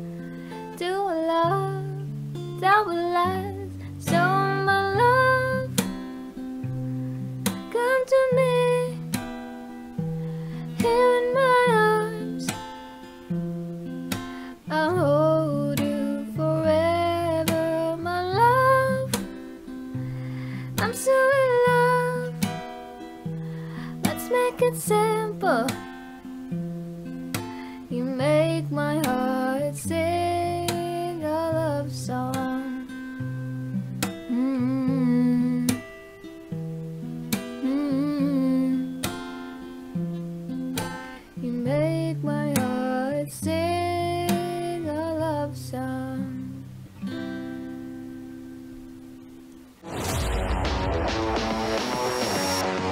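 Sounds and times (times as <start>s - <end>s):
strummed acoustic guitar: 0.0s - 52.9s
woman singing: 0.7s - 5.9s, 7.5s - 9.2s, 10.6s - 12.6s, 14.5s - 19.3s, 20.6s - 22.6s, 23.8s - 25.9s, 27.8s - 33.0s, 34.3s - 35.9s, 37.6s - 39.1s, 40.8s - 46.7s.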